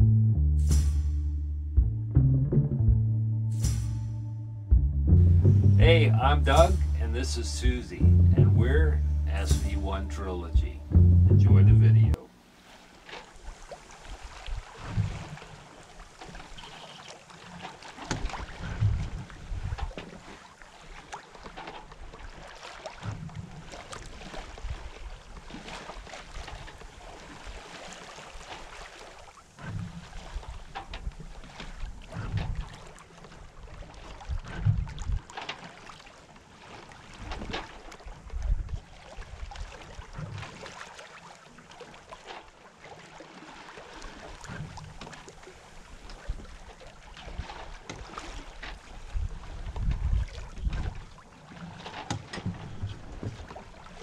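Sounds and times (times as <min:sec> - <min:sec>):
water rushing and splashing along hull: 0:05.4 - 0:54.0
wind buffeting microphone: 0:18.5 - 0:20.0, 0:34.2 - 0:35.3, 0:38.2 - 0:38.8, 0:49.0 - 0:51.1.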